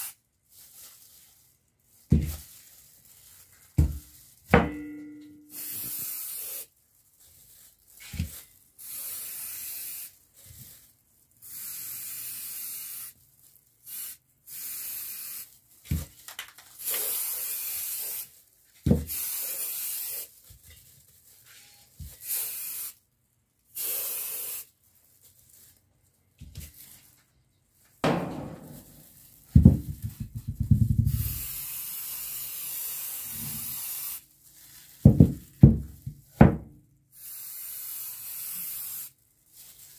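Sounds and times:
spray can hissing: 0:05.5 - 0:06.7, 0:08.8 - 0:10.1, 0:11.5 - 0:13.2, 0:13.9 - 0:15.5, 0:16.8 - 0:18.3, 0:19.1 - 0:20.4, 0:22.2 - 0:23.0, 0:23.8 - 0:24.7, 0:31.1 - 0:34.3, 0:37.2 - 0:39.2.

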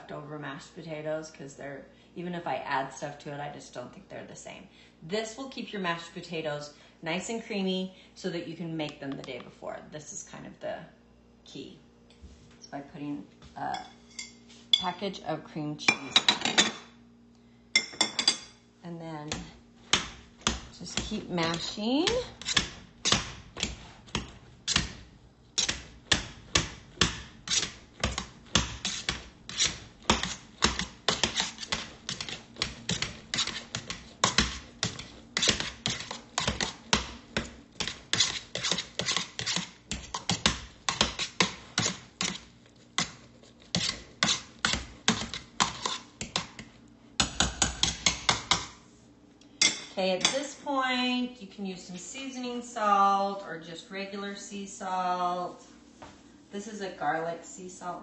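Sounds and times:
potato masher knocking on pot: 0:25.6 - 0:42.4, 0:43.0 - 0:48.7.

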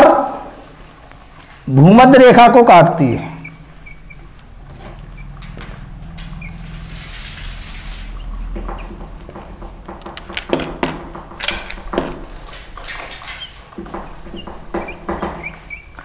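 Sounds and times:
marker squeaking on glass: 0:03.0 - 0:05.4, 0:06.2 - 0:10.3, 0:13.0 - 0:16.0.

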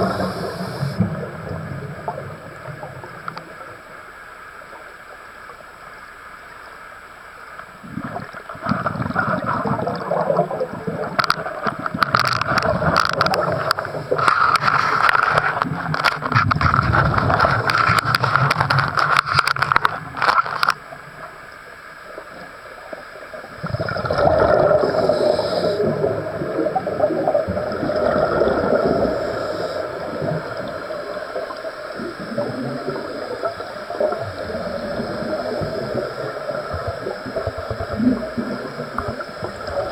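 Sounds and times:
diver's regulator breathing underwater: 0:00.0 - 0:01.4, 0:12.4 - 0:15.9, 0:23.6 - 0:30.7
air bubbling and gurgling: 0:00.0 - 0:03.4, 0:07.8 - 0:21.2, 0:23.4 - 0:39.9.

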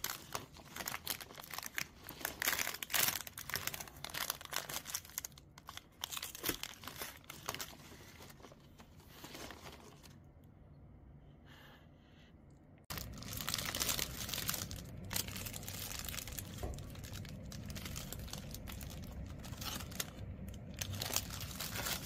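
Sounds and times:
plastic wrapper crinkling and tearing: 0:00.0 - 0:10.2, 0:12.9 - 0:22.0.

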